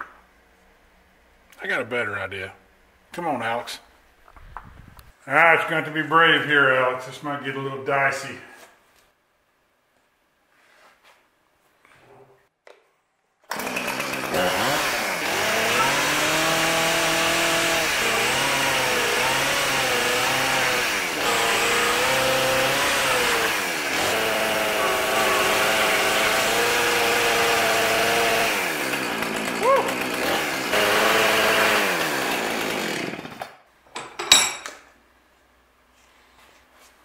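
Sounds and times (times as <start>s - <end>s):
chainsaw revving: 13.5s - 33.5s.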